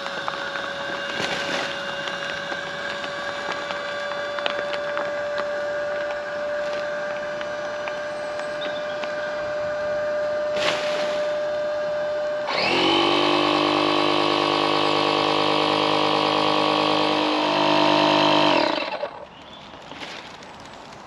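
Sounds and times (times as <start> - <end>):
inflator whining: 5.2 - 19.2
electric inflator humming: 11.6 - 19.2.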